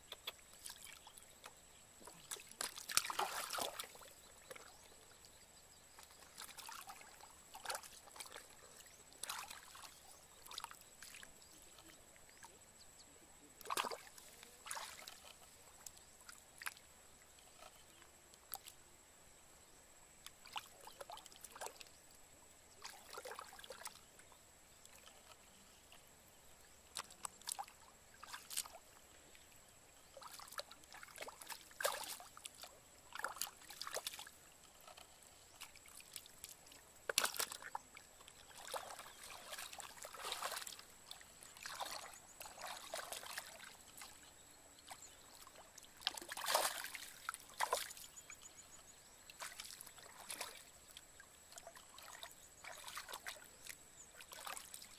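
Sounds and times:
hands splashing in muddy water: 2.0 - 4.1, 13.6 - 15.4, 37.1 - 37.8, 38.5 - 43.7, 46.0 - 48.0.

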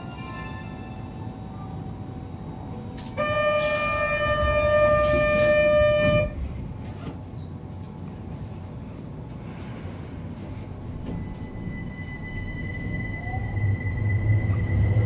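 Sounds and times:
train rumble: 0.0 - 15.0
door-closing warning tone: 3.0 - 6.5, 10.8 - 15.0.

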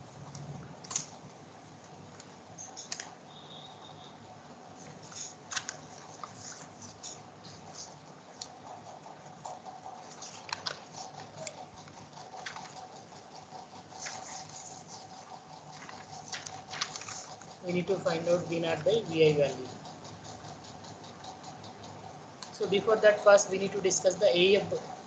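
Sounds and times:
faint steady hum: 0.0 - 25.0.

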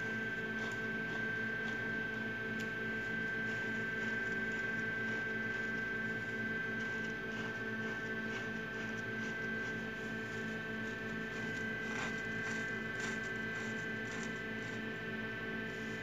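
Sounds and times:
steady electrical hum: 0.0 - 16.0.

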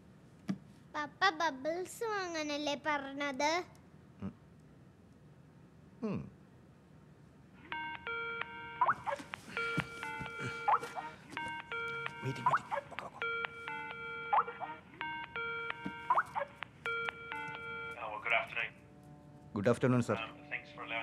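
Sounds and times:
electronic ringtone melody: 7.7 - 18.6.

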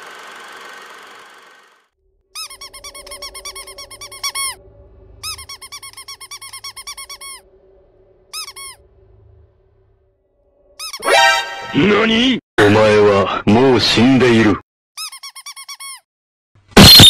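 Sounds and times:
cartoon squeaks: 2.4 - 4.6, 5.2 - 7.4, 8.4 - 8.8, 10.8 - 11.8, 15.0 - 16.1.

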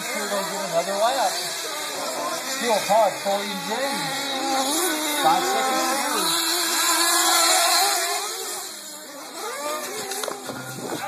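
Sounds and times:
rc car engines buzzing: 0.0 - 11.0.

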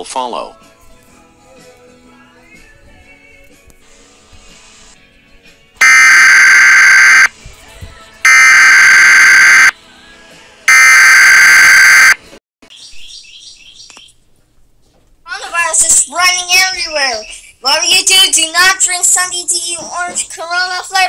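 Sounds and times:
harsh buzzing alert tones: 5.8 - 7.3, 8.3 - 9.7, 10.7 - 12.2.

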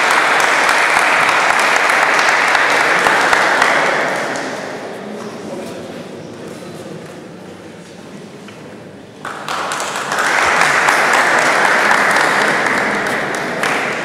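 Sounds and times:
spectators applauding: 0.0 - 4.6, 9.2 - 14.0.

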